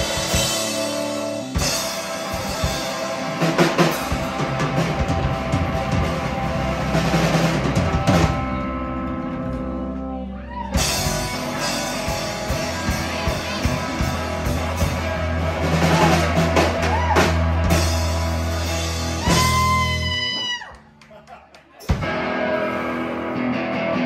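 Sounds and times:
drum kit with crashing cymbals: 0:00.0 - 0:09.8, 0:10.8 - 0:20.1
distorted electric guitar: 0:00.0 - 0:20.6, 0:21.9 - 0:24.0
bass guitar: 0:00.0 - 0:24.0.

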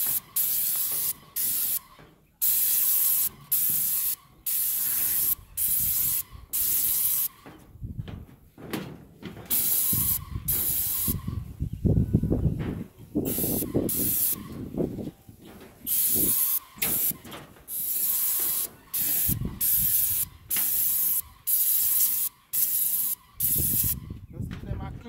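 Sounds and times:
paint spray gun hissing: 0:00.0 - 0:07.4, 0:09.5 - 0:11.3, 0:13.3 - 0:14.6, 0:15.9 - 0:24.1
handling rustling and knocking: 0:07.4 - 0:09.6, 0:14.6 - 0:15.9.

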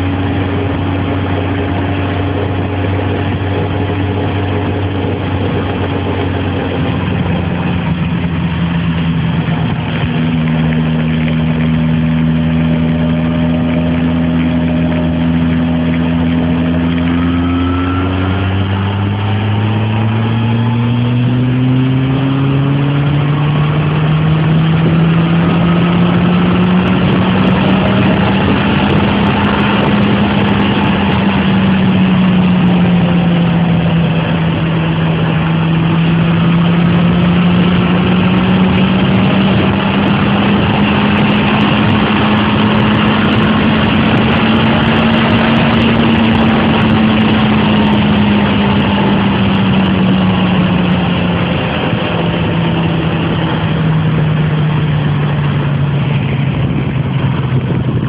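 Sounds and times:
heavy wind and road rush: 0:00.0 - 0:58.0
motorcycle engine at speed: 0:00.0 - 0:58.0.

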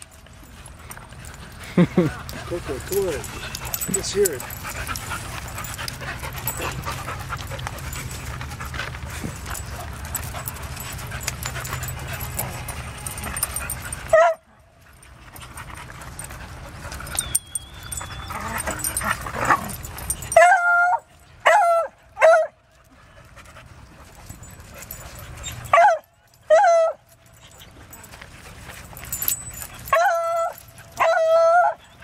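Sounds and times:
dogs panting: 0:00.0 - 0:32.0
dog yipping: 0:17.0 - 0:22.6, 0:25.3 - 0:27.6, 0:29.1 - 0:32.0.

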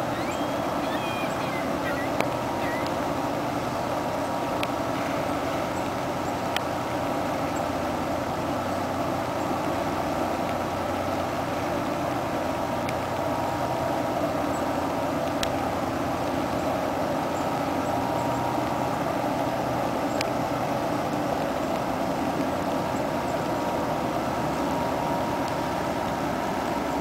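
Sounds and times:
ship engine drone: 0:00.0 - 0:06.2
thin steady whine: 0:00.0 - 0:27.0
faint clicks: 0:00.8 - 0:03.0.

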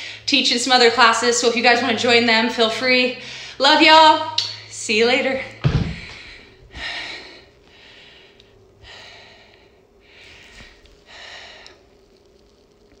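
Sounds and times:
woman breathing hard: 0:05.8 - 0:11.9.

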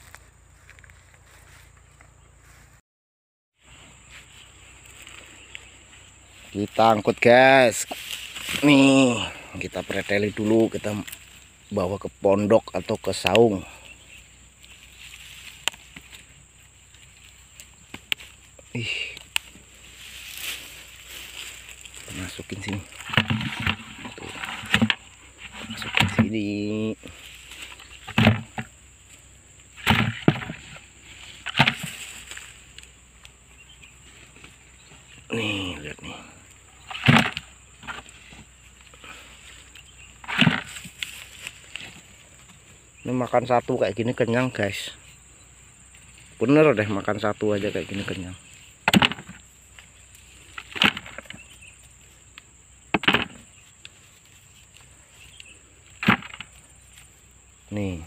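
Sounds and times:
high insect buzz: 0:03.6 - 0:58.0
potatoes thudding into bucket: 0:22.2 - 0:25.0, 0:25.6 - 0:26.4, 0:28.0 - 0:28.7, 0:29.8 - 0:30.8, 0:31.4 - 0:32.1, 0:36.9 - 0:38.1, 0:40.2 - 0:41.0, 0:48.9 - 0:49.4, 0:50.6 - 0:51.4, 0:56.0 - 0:56.6.

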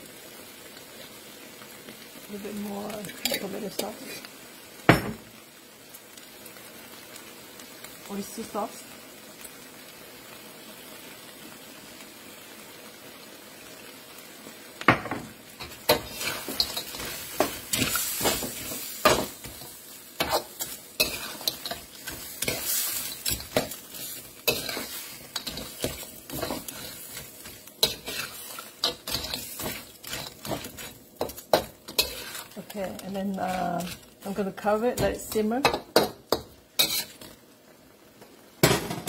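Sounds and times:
crab sizzling in a wok: 0:00.0 - 0:39.0
metal spatula scraping a wok: 0:03.0 - 0:04.0, 0:15.6 - 0:37.4.

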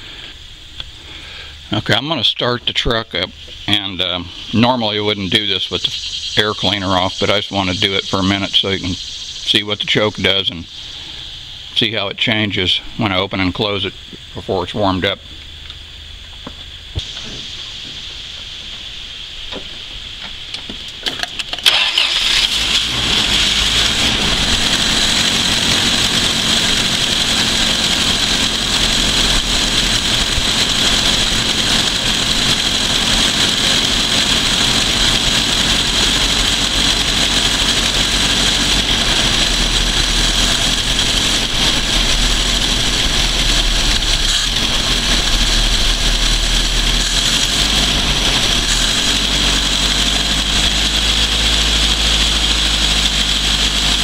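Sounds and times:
steady hiss: 0:00.0 - 0:21.1
engine cranking and running: 0:00.1 - 0:11.0, 0:20.9 - 0:54.0.

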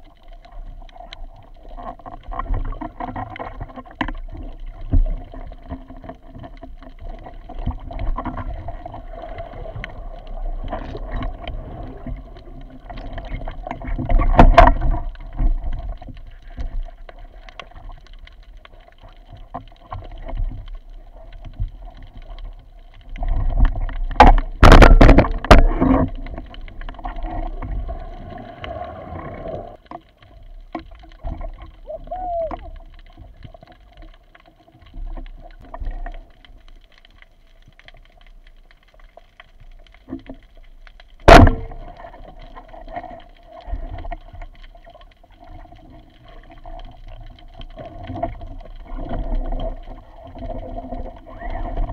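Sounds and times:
water swishing and bubbling: 0:00.0 - 0:51.9
splashing and knocking bursts: 0:41.2 - 0:41.9.

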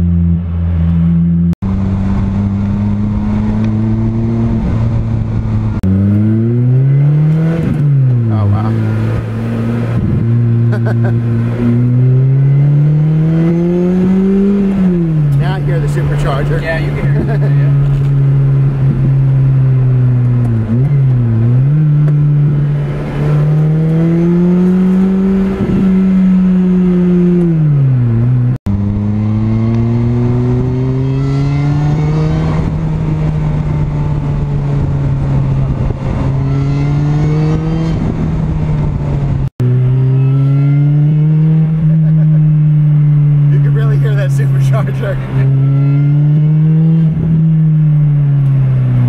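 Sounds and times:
car engine accelerating hard: 0:00.0 - 0:49.0.

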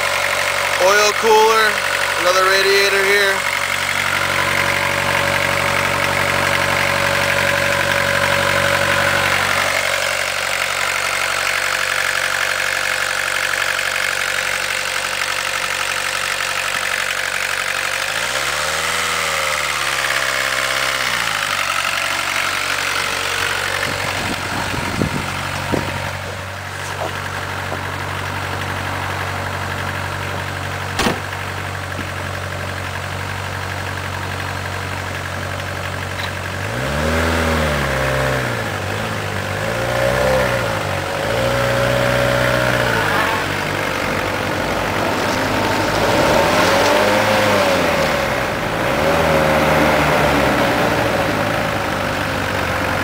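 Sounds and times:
diesel engine idling: 0:00.0 - 0:53.0
engine knocks: 0:19.7 - 0:36.9.

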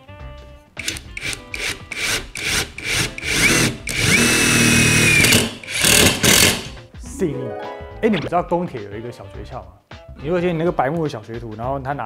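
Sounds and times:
impact driver driving screw: 0:00.8 - 0:06.8.

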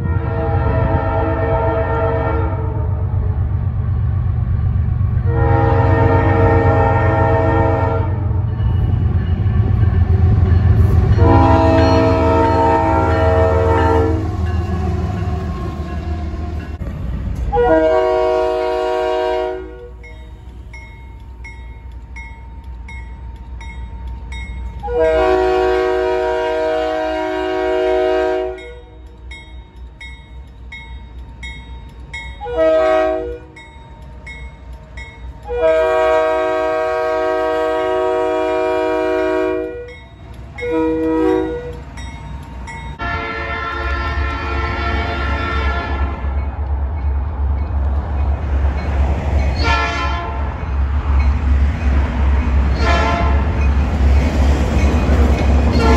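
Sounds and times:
locomotive horn blasts: 0:00.0 - 0:03.3, 0:05.2 - 0:08.4, 0:10.9 - 0:16.2, 0:17.5 - 0:20.0, 0:24.8 - 0:29.0, 0:32.4 - 0:33.6, 0:35.4 - 0:40.0, 0:40.6 - 0:41.8, 0:43.0 - 0:46.4, 0:49.6 - 0:50.5, 0:52.7 - 0:53.6
crossing bell dinging: 0:06.0 - 0:26.4, 0:28.1 - 0:36.9, 0:39.3 - 0:55.9
higher horn chord: 0:11.2 - 0:14.6, 0:17.5 - 0:19.9.

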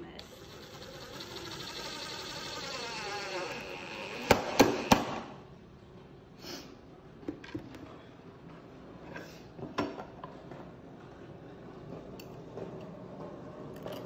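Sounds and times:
cordless drill motor whine: 0:00.2 - 0:05.2.

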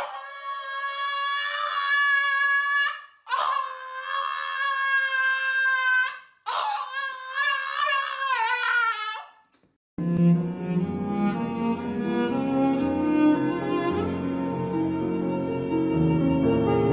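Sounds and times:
dog howling: 0:00.0 - 0:09.1.

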